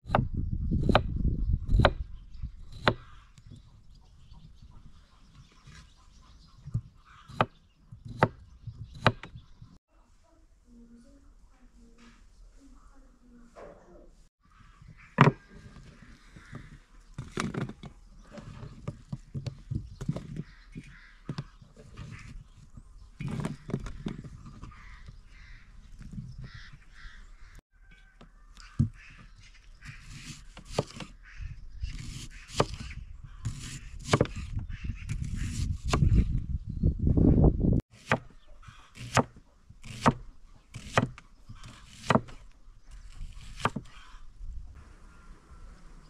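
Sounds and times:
birds calling: 0.4 - 9.8, 14.4 - 37.0, 38.0 - 46.0
knife cutting potatoes on board: 38.9 - 42.4, 43.3 - 43.9.

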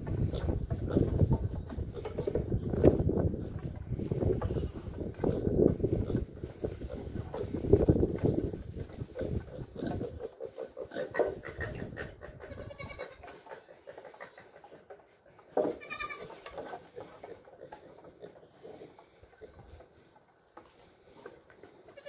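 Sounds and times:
goat kids bleating: 11.6 - 13.4, 15.7 - 16.5, 21.8 - 22.0.

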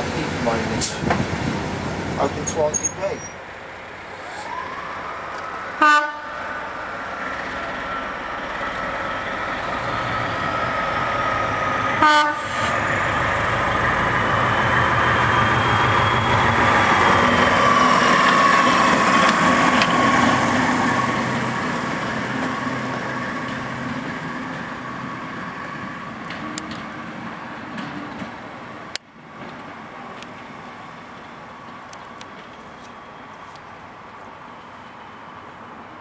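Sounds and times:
diesel locomotive engine droning: 0.0 - 36.0.

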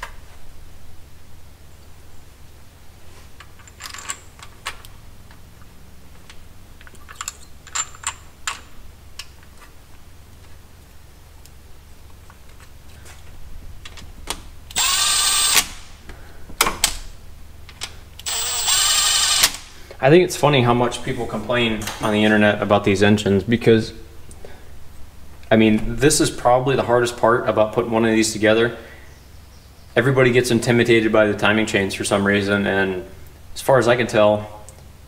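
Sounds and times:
metal chain clinking: 3.6 - 4.4, 6.9 - 8.3
cordless ratchet whirring: 14.7 - 15.9, 18.2 - 19.7.

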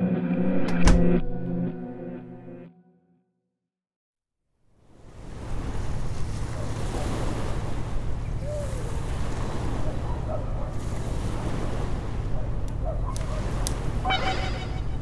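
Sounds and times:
wind: 4.7 - 15.0
sea waves washing on shore: 4.9 - 15.0.

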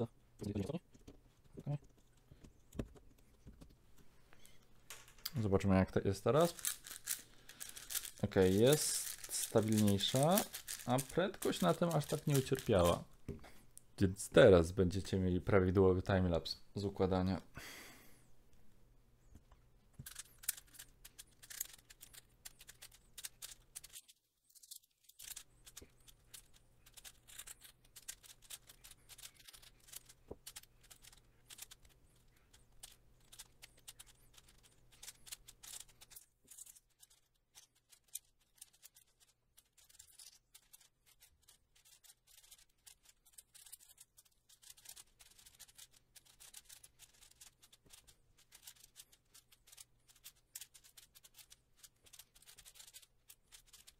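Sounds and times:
plastic cube clicking: 6.5 - 13.0, 20.0 - 24.0, 25.2 - 53.9.

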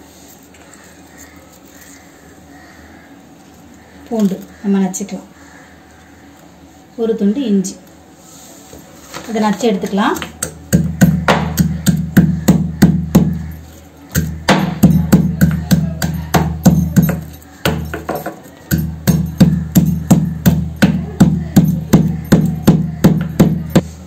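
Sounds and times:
pestle pounding in stone mortar: 10.1 - 23.9.

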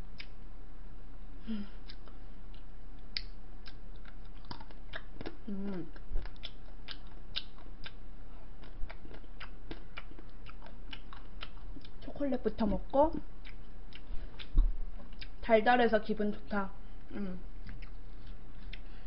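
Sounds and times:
low electrical hum: 0.0 - 19.0
person humming: 1.4 - 2.0, 5.4 - 6.0, 17.1 - 17.5.

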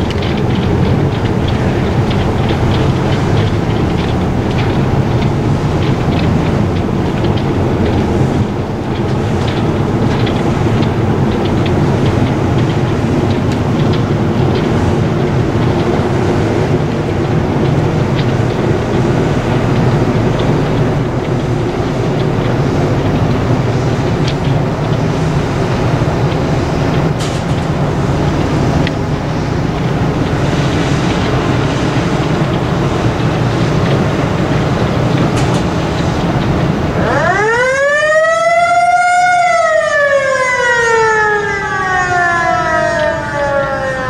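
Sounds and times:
ship engine rumbling: 0.0 - 44.0
warning siren winding: 36.9 - 44.0.

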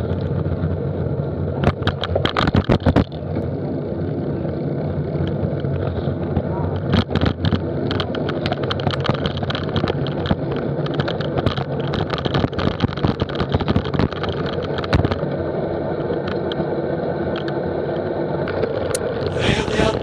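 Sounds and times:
wind and road noise: 0.0 - 20.0
bike clicks and knocks: 1.6 - 3.2, 6.3 - 15.2.

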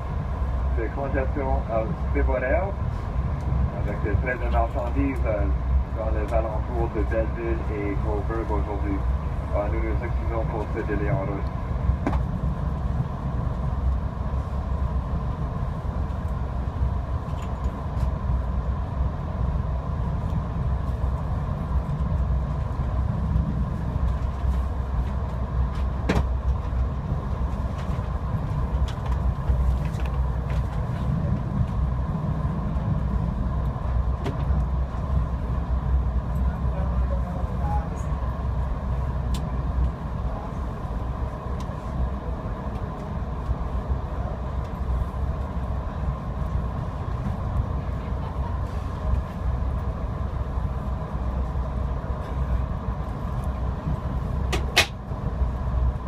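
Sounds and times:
faint steady whine: 0.0 - 56.0
train rumbling on track: 0.0 - 56.0.

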